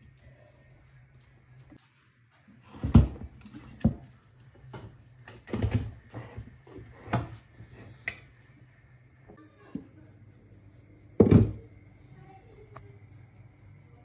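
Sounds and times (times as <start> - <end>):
clay pot knocking on hob: 11.2 - 11.7.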